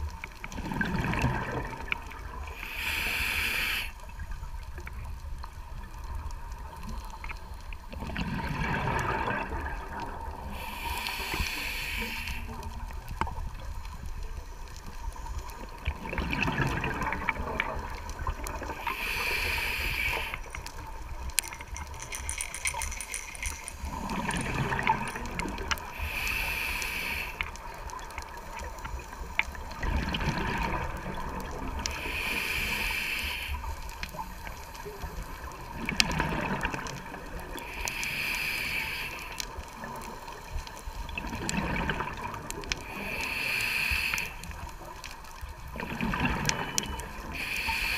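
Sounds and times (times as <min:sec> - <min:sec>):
regulator inhalation hiss: 0:02.5 - 0:04.0, 0:10.4 - 0:12.6, 0:18.7 - 0:20.8, 0:25.8 - 0:27.6, 0:31.9 - 0:34.2, 0:37.6 - 0:39.6, 0:42.8 - 0:44.9, 0:47.3 - 0:47.9.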